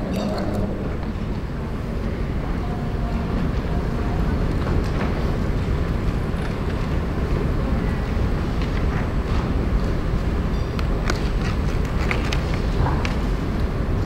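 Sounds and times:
steady low rumbling: 0.0s - 10.5s.

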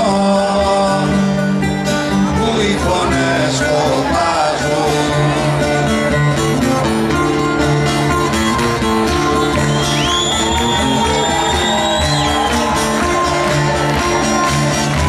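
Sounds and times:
plucked lute over steady rhythm: 0.0s - 9.6s.

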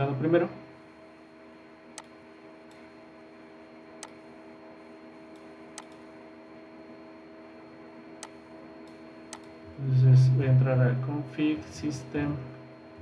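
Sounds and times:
faint electrical hum: 0.0s - 13.0s
computer clicks: 4.0s - 4.2s, 5.3s - 6.0s, 8.2s - 9.6s.

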